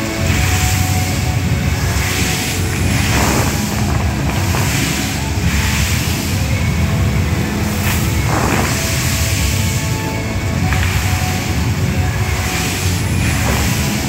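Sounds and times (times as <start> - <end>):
loud music with low rumble: 0.0 - 14.0
water jets spraying: 0.0 - 14.0.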